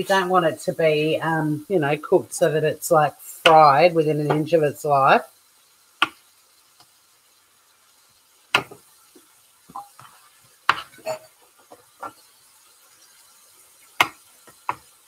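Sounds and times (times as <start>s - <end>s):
knife chopping on wooden board: 8.5s - 8.8s.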